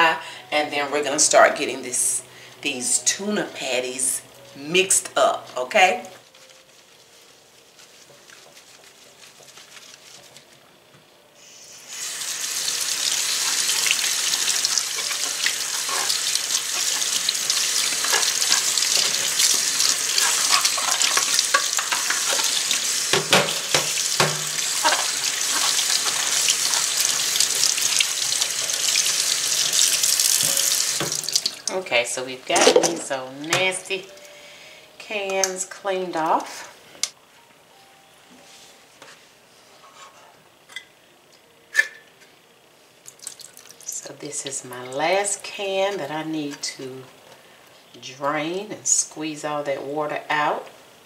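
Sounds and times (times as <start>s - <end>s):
paper towel rubbing a can: 6.7s - 10.5s
water running into a steel sink: 12.0s - 31.7s.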